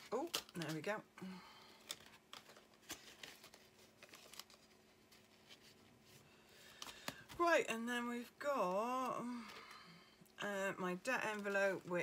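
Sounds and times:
plastic envelopes rustling: 0.0s - 7.5s.

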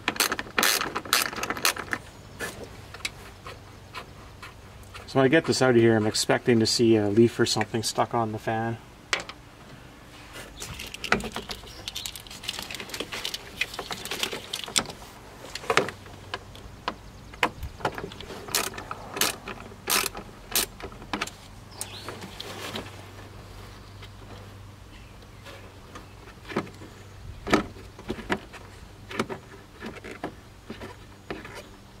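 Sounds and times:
ratchet clicking: 18.5s - 20.7s.

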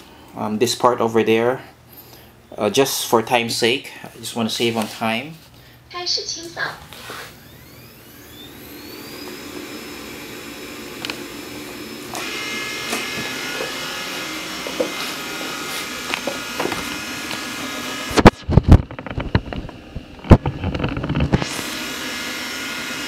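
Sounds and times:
robot vacuum motor whine: 6.9s - 23.0s.

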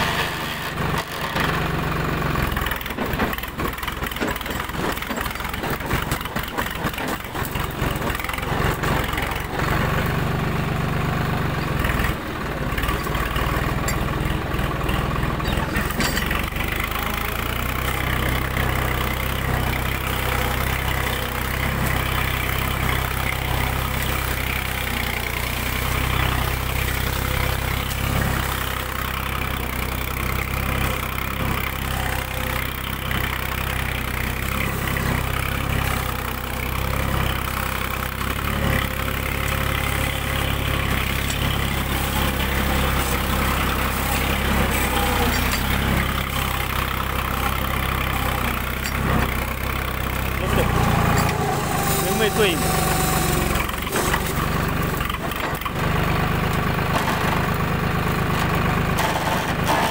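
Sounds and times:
tractor engine under load: 0.0s - 59.9s.

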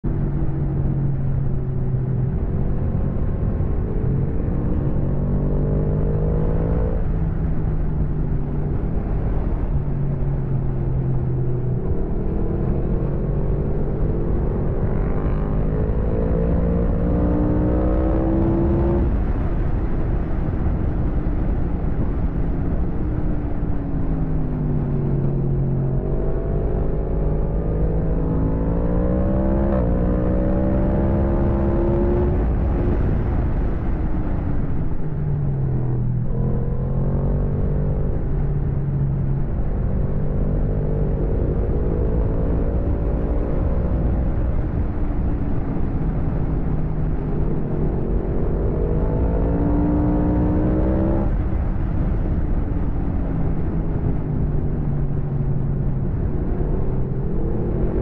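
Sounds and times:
motorcycle engine revving: 25.9s - 32.6s.

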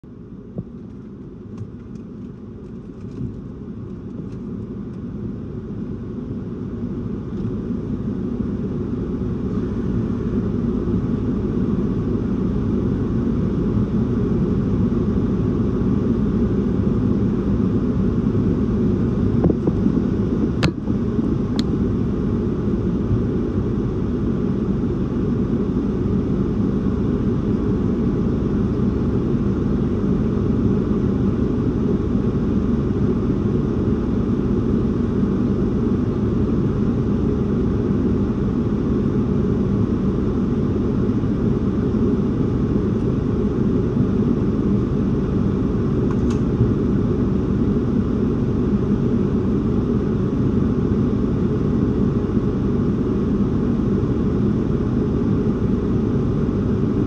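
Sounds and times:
gusty wind rumbling: 19.2s - 21.9s.

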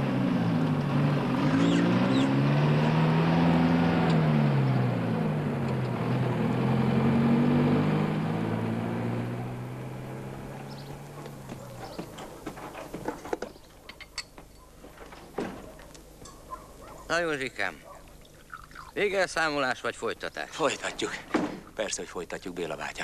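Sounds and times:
lorry engine pulling away: 0.0s - 13.2s.

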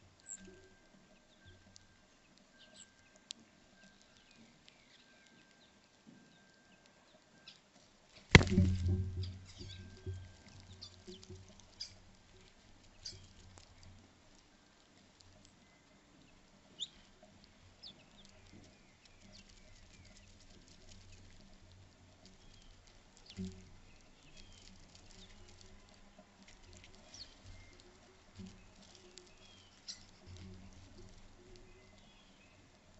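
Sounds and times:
bird pecking on a feeder: 8.3s - 32.9s.

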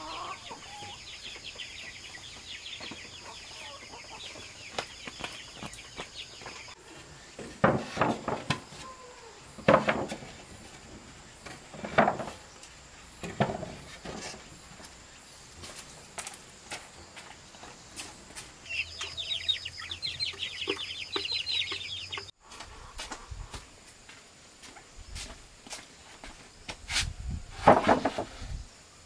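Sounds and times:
hens clucking: 0.0s - 7.4s, 18.6s - 23.6s.

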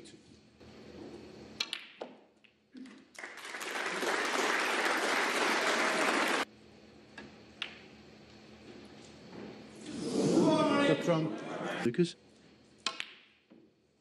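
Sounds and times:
audience applauding: 3.1s - 6.5s.

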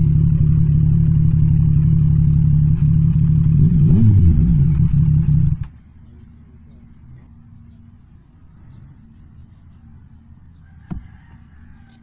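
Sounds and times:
motorcycle engine running: 0.0s - 7.2s.

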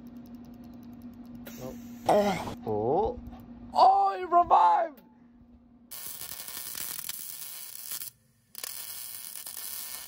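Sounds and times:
welder arc crackling: 5.9s - 10.0s.

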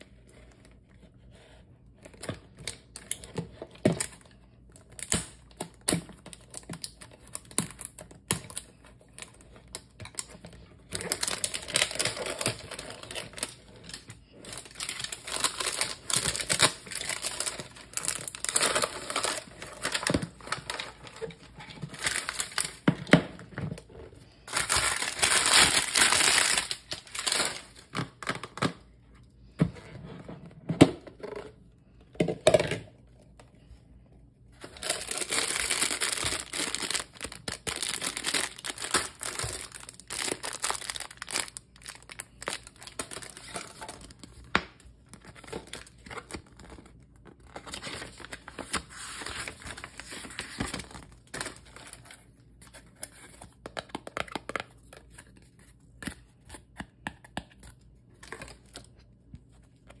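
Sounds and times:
wrapping being torn and crumpled: 2.0s - 23.1s, 23.8s - 28.6s, 34.6s - 56.3s.

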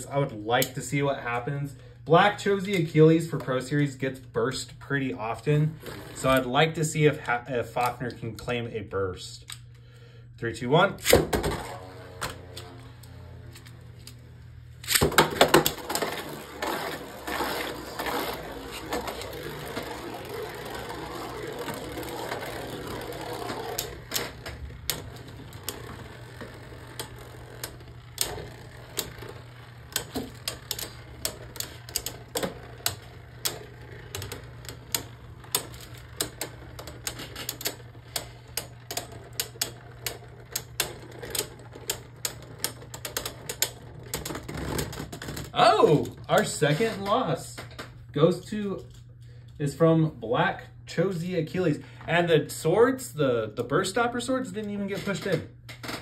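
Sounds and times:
spinning tops whirring and scraping: 0.0s - 8.5s, 10.5s - 47.7s
spinning tops clicking and knocking: 5.8s - 6.6s, 11.0s - 46.8s.

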